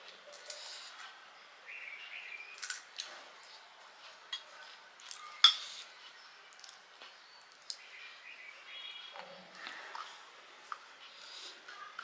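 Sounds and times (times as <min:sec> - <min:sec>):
crisp food cracking: 0:02.6 - 0:03.1.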